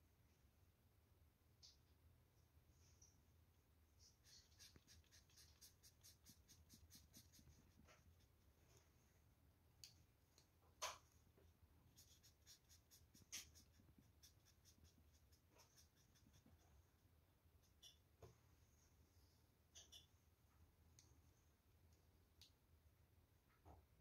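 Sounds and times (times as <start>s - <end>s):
marker scribbling on paper: 4.1s - 8.5s, 11.9s - 16.8s.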